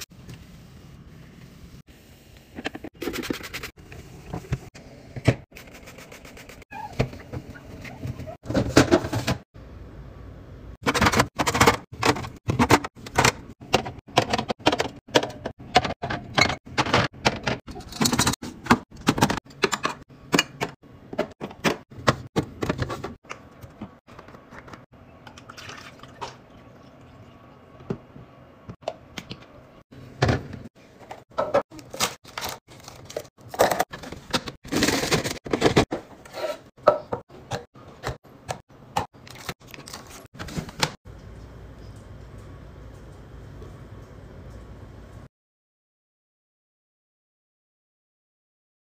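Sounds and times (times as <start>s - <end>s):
juice pouring into carafe: 25.3s - 27.4s.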